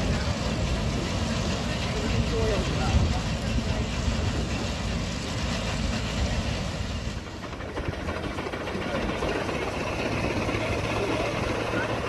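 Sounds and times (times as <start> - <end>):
threshing machine running: 0.0 - 12.0.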